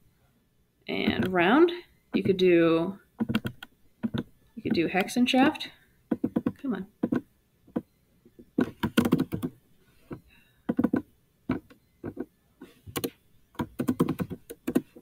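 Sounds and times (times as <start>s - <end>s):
computer keyboard typing: 1.1s - 1.4s, 3.2s - 5.1s, 6.1s - 7.8s, 8.6s - 9.6s, 10.7s - 12.3s, 12.9s - 15.0s.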